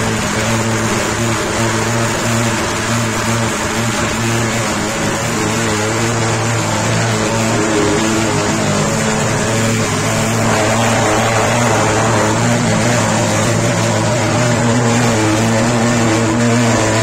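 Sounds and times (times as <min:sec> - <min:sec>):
fogging machine droning: 0:05.8 - 0:16.3.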